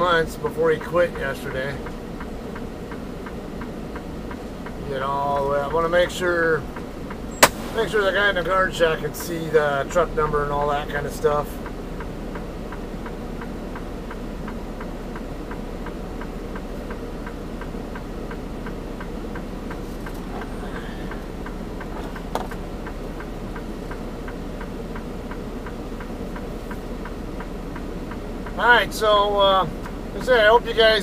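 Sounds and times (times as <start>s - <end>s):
truck engine idling: 0.0s - 31.0s
indicator flasher clicking: 7.3s - 7.9s.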